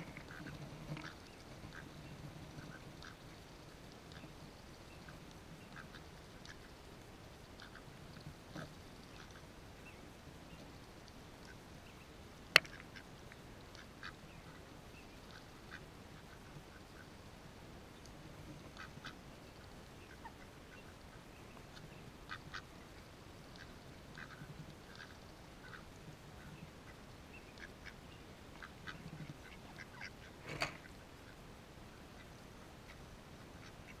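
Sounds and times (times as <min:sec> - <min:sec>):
ducks quacking: 0:00.0 - 0:02.0, 0:18.6 - 0:31.4, 0:32.0 - 0:34.0.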